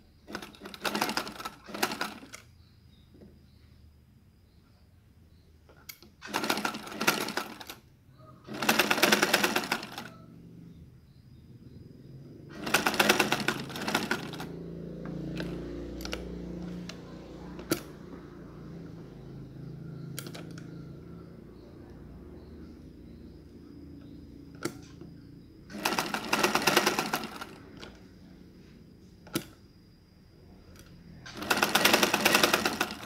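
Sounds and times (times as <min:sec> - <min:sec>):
sewing machine stitching: 0:00.2 - 0:02.5, 0:05.9 - 0:07.8, 0:08.5 - 0:10.3, 0:12.5 - 0:18.0, 0:20.1 - 0:20.7, 0:25.7 - 0:28.0, 0:30.8 - 0:33.0
low running machine sound: 0:08.5 - 0:29.3
sharp clicks: 0:20.1 - 0:20.7.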